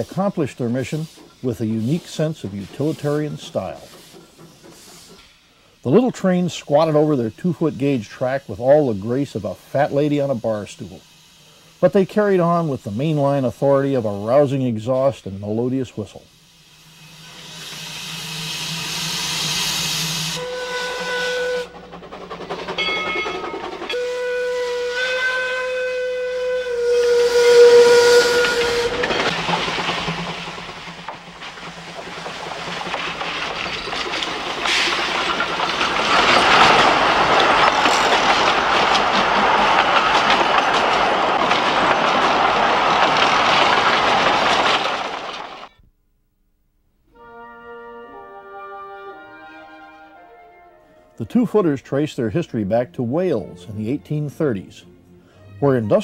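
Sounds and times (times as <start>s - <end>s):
steam exhaust chuffing: 0.0s - 45.7s
steam hissing: 0.0s - 45.7s
train wheels on rail: 0.0s - 45.8s
steam whistle blasts: 16.5s - 21.9s, 23.9s - 29.3s, 47.1s - 51.3s.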